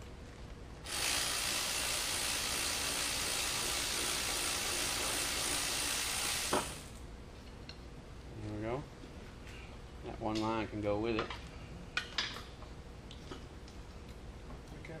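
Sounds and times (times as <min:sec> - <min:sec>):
steady loud hiss: 0:00.8 - 0:07.1.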